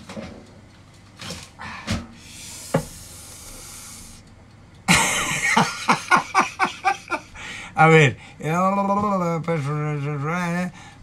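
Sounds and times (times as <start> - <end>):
steady hiss: 2.1 - 8.4
man laughing loudly: 4.9 - 7.5.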